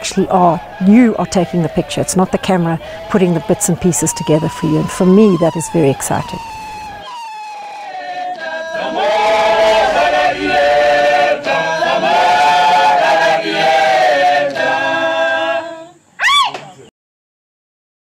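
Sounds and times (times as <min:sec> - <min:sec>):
rising and falling pitch sound: 0:00.0 - 0:13.9
choir singing held chords: 0:00.0 - 0:16.1.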